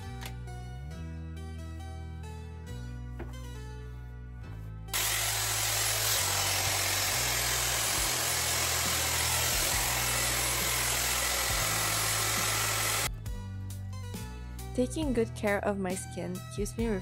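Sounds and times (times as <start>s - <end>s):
hair styler blowing air: 5.0s - 13.1s
high motor whine: 5.0s - 13.1s.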